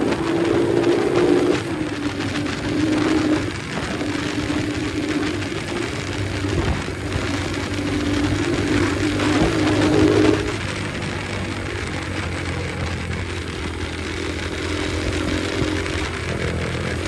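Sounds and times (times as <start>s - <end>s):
motorcycle engine cruising: 0.0s - 17.0s
wind rushing over microphone: 0.0s - 17.0s.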